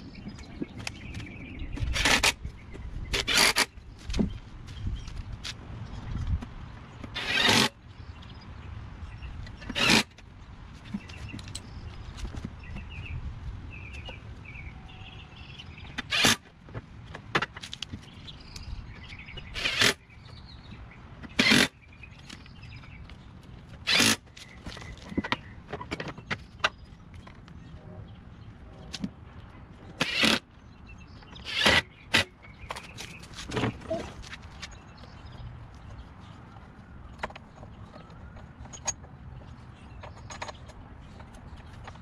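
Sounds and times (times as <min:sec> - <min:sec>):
cordless drill driving bolts: 0:23.9 - 0:24.2, 0:30.0 - 0:30.4.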